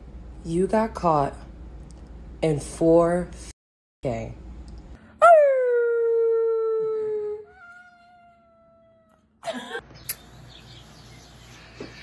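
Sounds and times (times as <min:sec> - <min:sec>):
cat yowling: 0:07.4 - 0:09.2.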